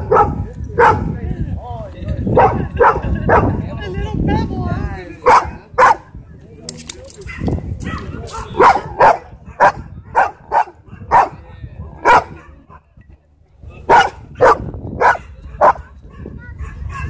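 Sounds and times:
large dog barking: 0.0 - 1.2, 2.3 - 3.6, 5.2 - 6.1, 7.3 - 12.9, 13.8 - 17.0.

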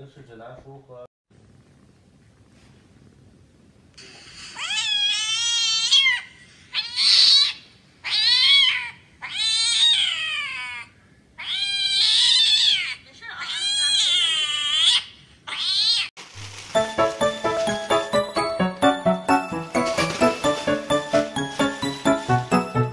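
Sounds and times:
cat meowing: 4.5 - 16.1.

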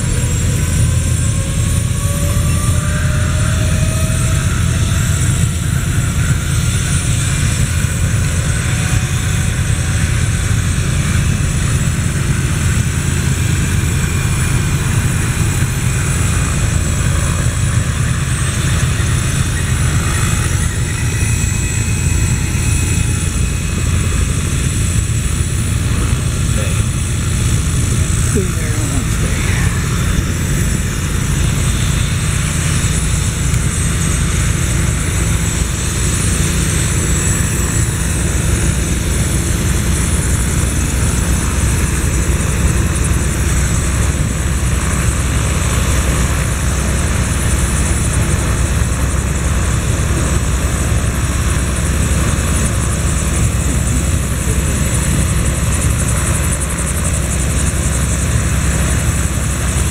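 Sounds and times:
helicopter rotor drone: 0.0 - 59.9
high-pitched engine whine: 0.0 - 59.9.

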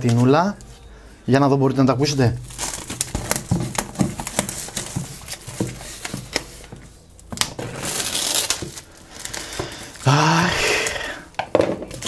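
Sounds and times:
plastic shrink-wrap crinkling: 2.1 - 11.2.

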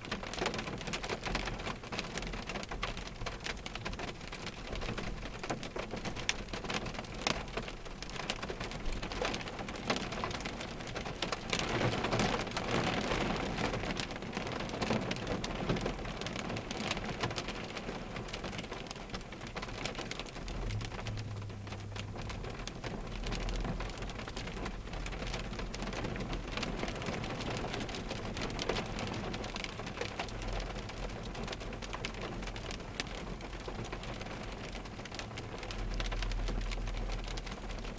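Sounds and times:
rain pattering on car roof: 0.0 - 37.9
low rumble: 20.4 - 23.0.

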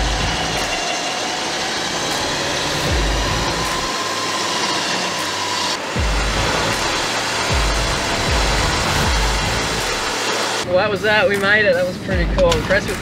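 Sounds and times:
vehicle engine running: 0.0 - 10.7
winch motor and gear whine: 0.0 - 10.7
deep low thumps: 7.5 - 9.8.

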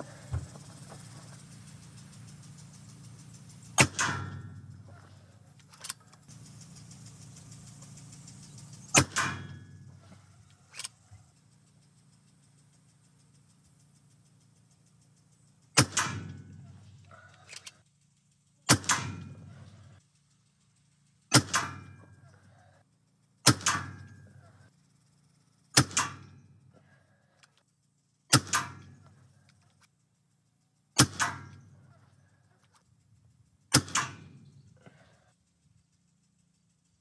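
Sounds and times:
air pistol shots: 3.5 - 4.7, 8.8 - 9.8, 15.7 - 16.6, 18.6 - 19.6, 21.3 - 22.0, 23.4 - 24.2, 25.7 - 26.4, 28.3 - 29.1, 31.0 - 31.6, 33.7 - 34.5.

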